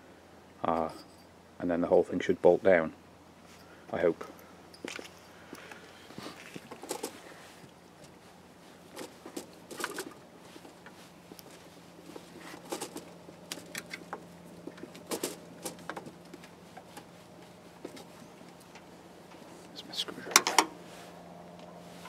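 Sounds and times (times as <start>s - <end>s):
faint steady hum: 0.0s - 22.0s
clicks and taps of metal parts: 20.3s - 20.7s.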